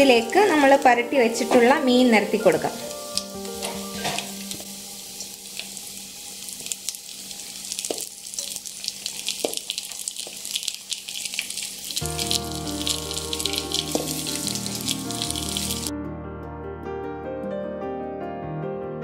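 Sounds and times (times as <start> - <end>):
background music: 0.0 - 5.4, 12.0 - 19.0
fish sizzling in oil: 0.0 - 15.9.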